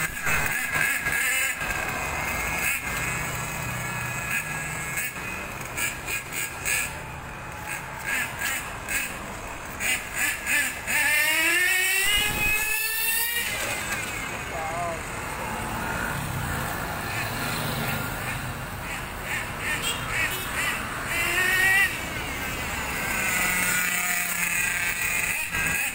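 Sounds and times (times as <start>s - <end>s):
street noise: 0.0s - 25.9s
vehicle motor speeding up: 7.7s - 16.8s.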